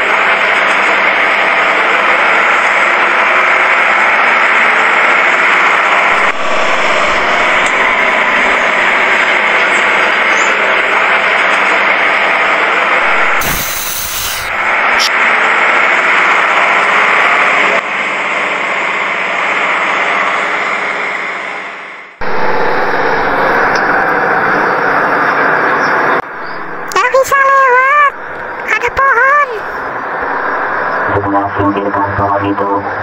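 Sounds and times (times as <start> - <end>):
truck engine drone: 0.0 - 33.0
short rushing noise: 13.0 - 15.1.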